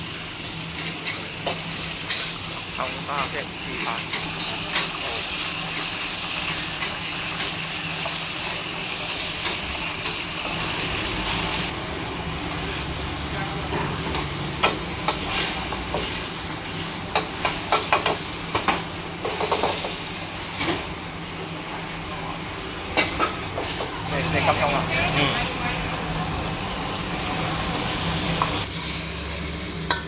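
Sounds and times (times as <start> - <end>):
oil sizzling in a wok: 0.0 - 30.0.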